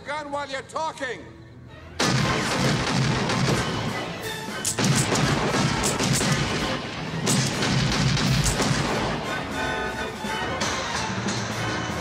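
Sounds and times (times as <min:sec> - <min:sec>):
background music: 0:00.0 - 0:12.0
handgun shots: 0:02.0 - 0:04.0, 0:04.6 - 0:09.2.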